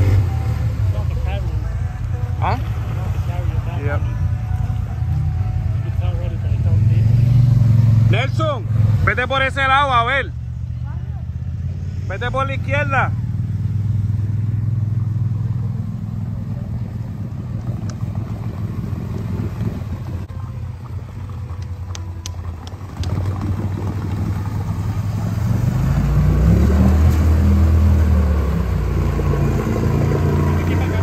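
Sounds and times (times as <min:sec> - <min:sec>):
quad bike engine revving: 0:00.0 - 0:01.4, 0:22.5 - 0:31.0.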